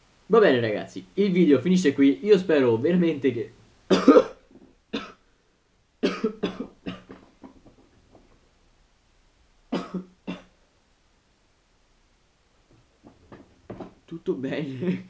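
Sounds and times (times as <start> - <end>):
man coughing hard: 3.9 - 4.4, 5.0 - 5.2, 6.0 - 7.2, 9.7 - 10.5.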